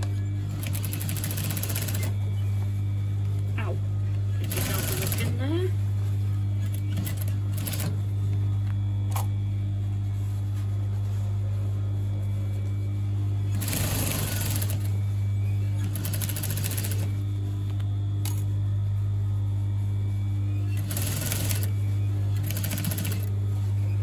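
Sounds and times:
steady low hum: 0.0s - 24.0s
sewing machine stitching: 4.4s - 5.3s, 20.8s - 21.7s, 22.4s - 23.3s.

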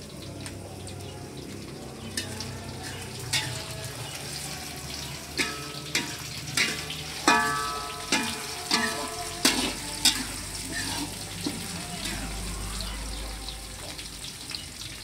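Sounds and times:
food sizzling: 0.0s - 15.0s
spatula scraping metal wok: 2.1s - 12.6s.

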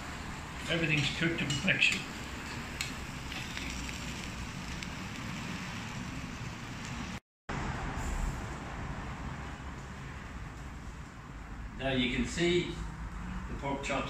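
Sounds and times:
meat sizzling on a grill: 0.8s - 7.2s.

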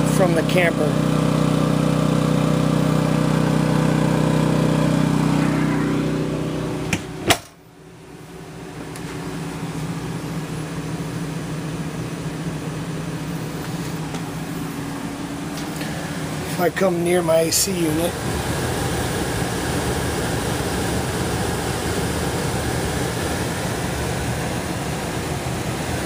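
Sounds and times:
generator engine hum: 0.0s - 26.0s
air conditioner muffled hum: 6.5s - 26.0s.

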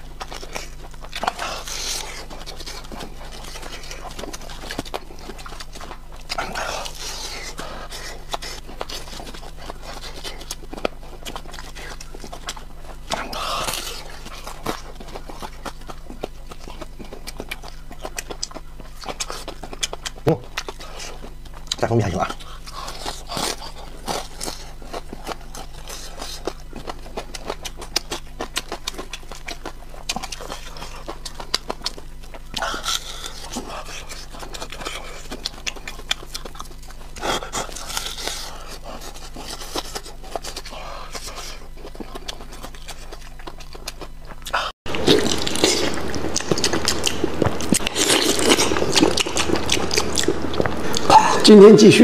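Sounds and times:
wet chewing of meat: 0.0s - 51.7s
crunching fried chicken: 0.0s - 52.0s.

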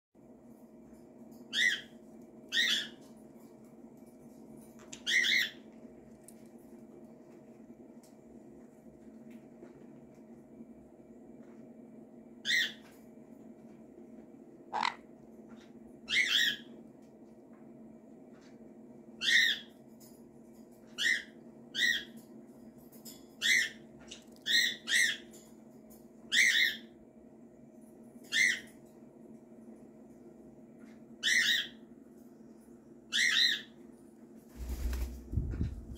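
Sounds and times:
faint steady hum: 0.2s - 35.9s
parrot squawks: 14.7s - 15.1s.

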